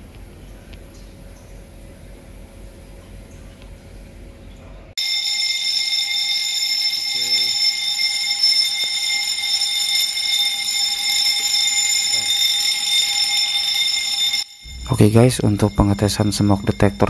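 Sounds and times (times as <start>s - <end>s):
fire alarm bell ringing: 5.0s - 17.0s.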